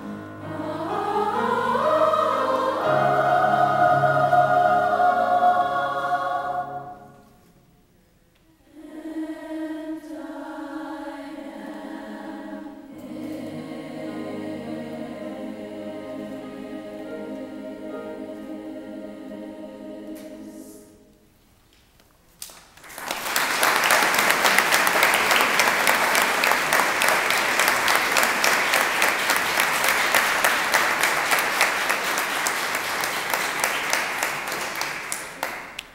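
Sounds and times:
women's choir singing: 0.0 - 7.4, 8.6 - 21.2
audience applause: 22.8 - 35.9.

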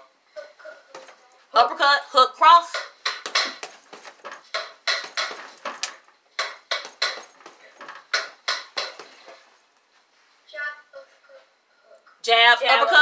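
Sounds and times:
sharp slaps and rattles: 2.6 - 9.4.

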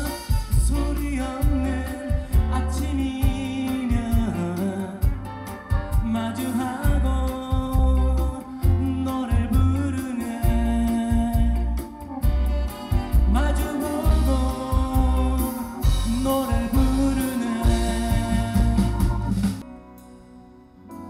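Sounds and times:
person singing: 0.0 - 19.7
kick drum and bass beat: 6.8 - 9.8, 14.1 - 19.6.

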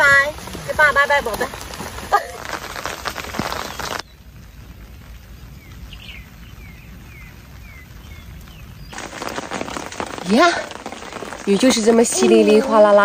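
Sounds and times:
quiet rainy outdoor background: 0.0 - 13.0
rain pattering on an umbrella: 0.0 - 13.0
bird chirping: 5.5 - 9.0.

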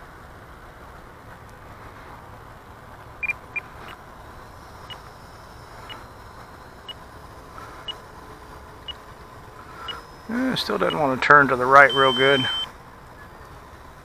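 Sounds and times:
short high-pitched electronic beeps: 11.8 - 12.7.

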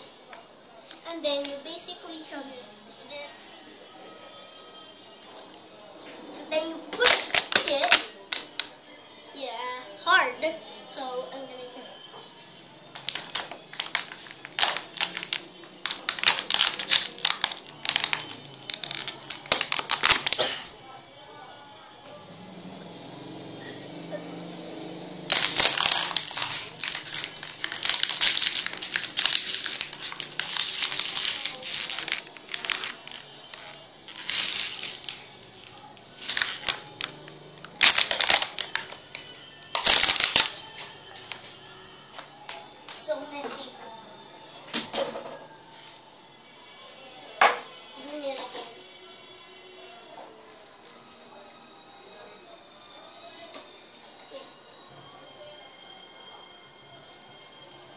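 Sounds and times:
faint background music: 0.0 - 57.9
plastic bottle crackling: 7.0 - 8.7, 12.9 - 20.6, 25.3 - 40.6.

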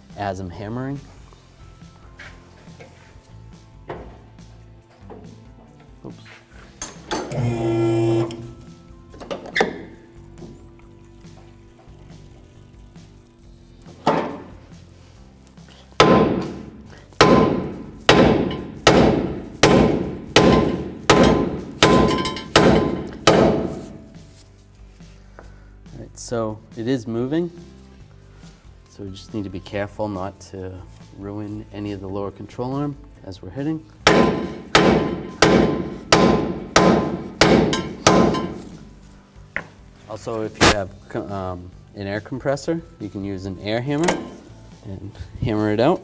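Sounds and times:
hammer striking metal: 16.0 - 24.2, 34.0 - 38.9, 44.0 - 44.5.

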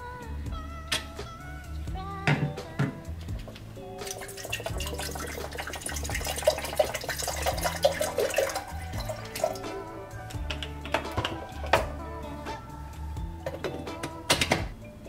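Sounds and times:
soft background music: 0.0 - 15.0
water pouring into kettle: 4.0 - 9.8.

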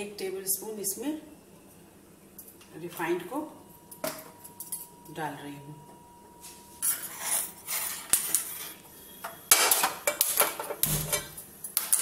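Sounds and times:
utensils and dishes clinking: 6.8 - 12.0.

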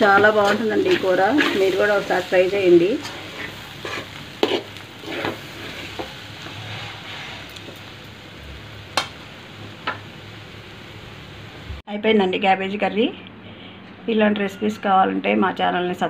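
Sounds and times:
spoon scraping and clinking on pan: 0.0 - 2.0
frying sizzle: 0.0 - 11.8.

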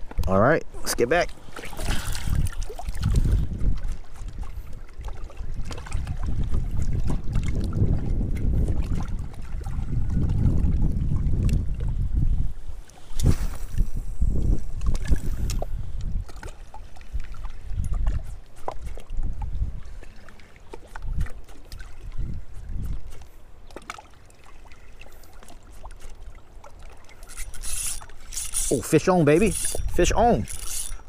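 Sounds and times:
wind buffeting microphone: 1.7 - 20.2, 20.8 - 23.4, 27.3 - 31.0
fishing reel handling clicks: 27.2 - 31.0.

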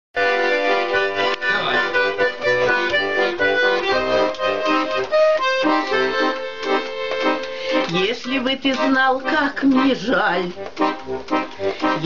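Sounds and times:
button accordion melody: 0.2 - 12.0.

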